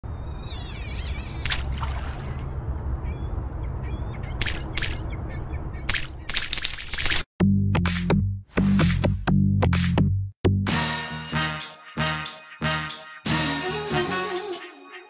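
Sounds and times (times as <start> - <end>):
birds calling: 0.4 - 6.7.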